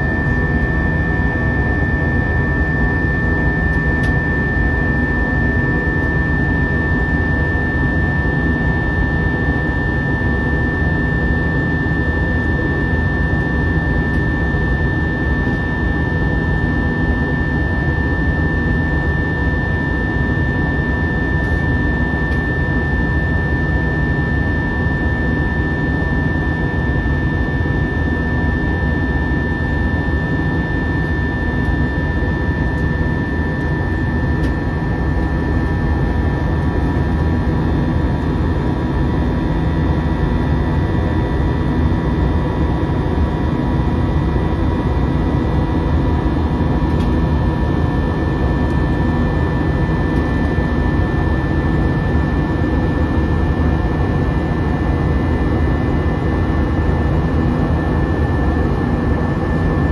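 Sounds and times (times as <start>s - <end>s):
high whine: 0.0s - 41.6s
jet engines running: 0.0s - 44.2s.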